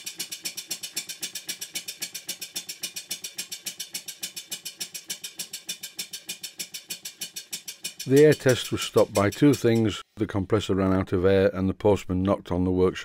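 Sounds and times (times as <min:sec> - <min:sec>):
steam engine chuffing: 0:00.0 - 0:10.0.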